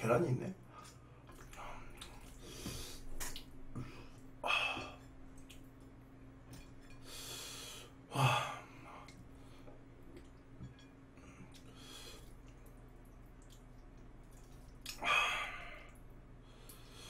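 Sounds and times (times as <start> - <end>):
man breathing hard: 3.8 - 5.0, 7.1 - 9.8, 15.0 - 17.0.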